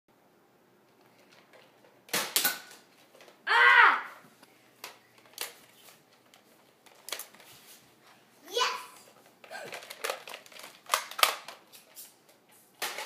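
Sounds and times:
child shouting: 0:03.5 - 0:04.2, 0:08.5 - 0:09.0.

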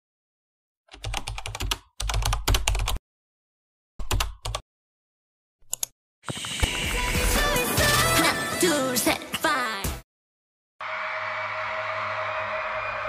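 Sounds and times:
computer keyboard typing: 0:00.9 - 0:03.0, 0:04.0 - 0:04.6.

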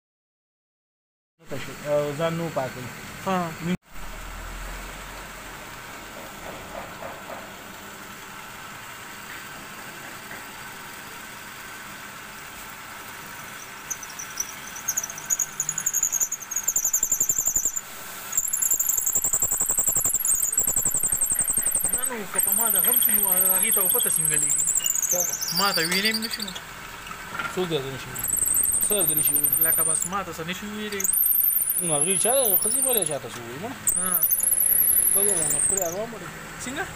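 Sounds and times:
high wavering wood squeal: 0:13.2 - 0:26.8, 0:27.8 - 0:33.3, 0:33.9 - 0:36.2
wood lathe humming: 0:13.2 - 0:26.9, 0:28.2 - 0:33.2, 0:33.9 - 0:36.4.

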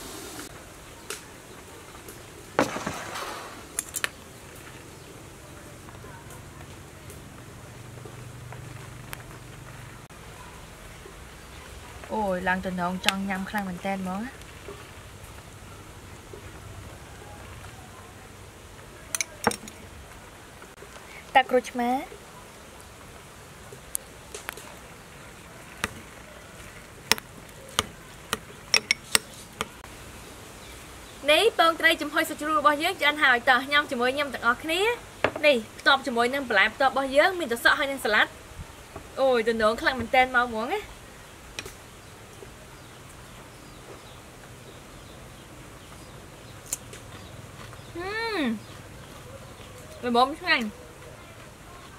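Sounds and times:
metal spoon clicking on ceramic bowl: 0:28.8 - 0:29.3.

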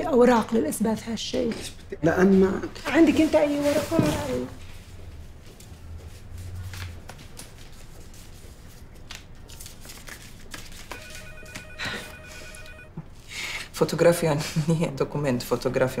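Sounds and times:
electronic telephone ring: 0:10.9 - 0:13.0.

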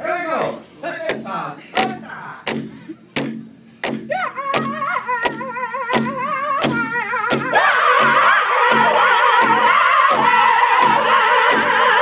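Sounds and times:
large drum beating: 0:01.0 - 0:11.9
high lead voice singing: 0:04.1 - 0:12.0
group of singers: 0:04.3 - 0:12.0.

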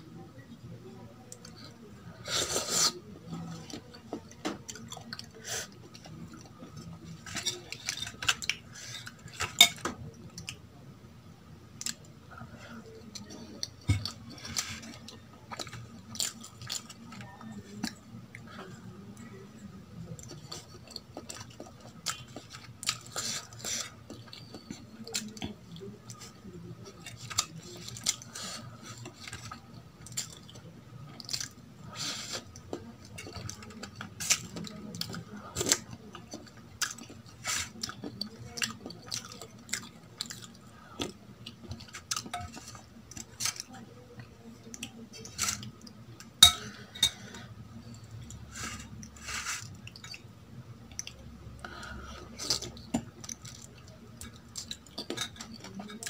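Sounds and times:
low steady hum: 0:00.0 - 0:56.0
wet chewing sounds: 0:13.1 - 0:18.5, 0:20.2 - 0:46.4.

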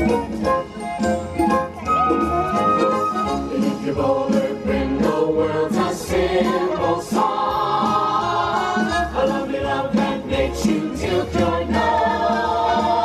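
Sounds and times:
instrumental backing with beat: 0:00.0 - 0:07.3
group singing show tune: 0:03.3 - 0:13.0.

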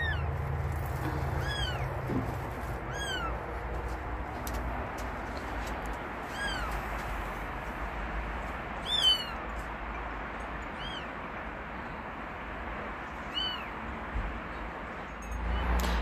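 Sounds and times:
kitten mewing: 0:01.0 - 0:02.0, 0:02.8 - 0:03.5, 0:06.2 - 0:06.8, 0:10.7 - 0:11.1.

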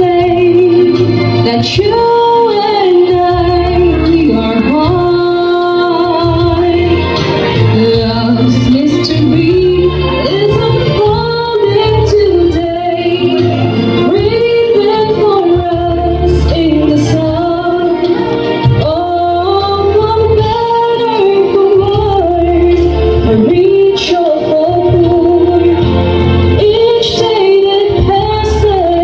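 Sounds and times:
steady bass accompaniment: 0:00.0 - 0:29.0
woman singing: 0:00.0 - 0:29.0.

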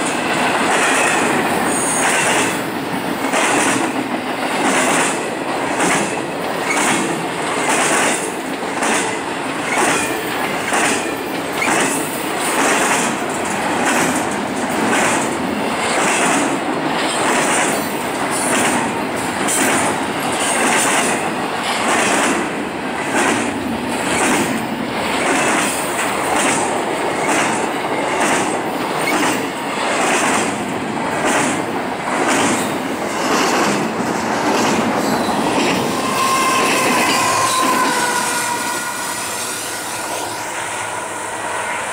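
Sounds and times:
train wheels clattering on rails: 0:00.0 - 0:39.0
locomotive horn: 0:35.8 - 0:41.9.

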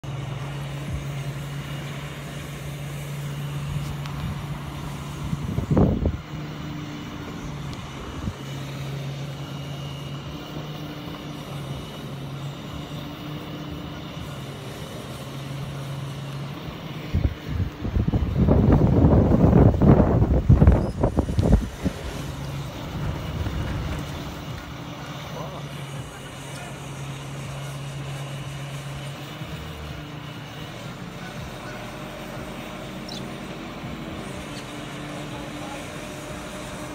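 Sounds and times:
crane engine humming: 0:00.0 - 0:36.9
wind buffeting microphone: 0:03.7 - 0:06.4, 0:17.1 - 0:24.6.

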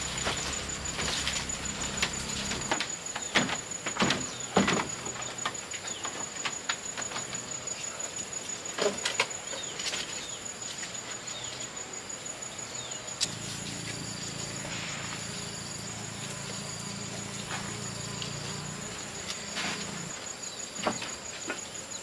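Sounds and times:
insects chirring: 0:00.0 - 0:22.0
knocks on wooden porch floor: 0:00.2 - 0:07.4.

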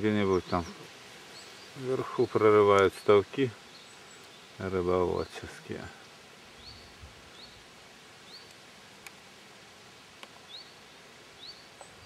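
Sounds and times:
small bird chirping: 0:00.0 - 0:04.7, 0:06.6 - 0:08.6, 0:10.2 - 0:12.0.

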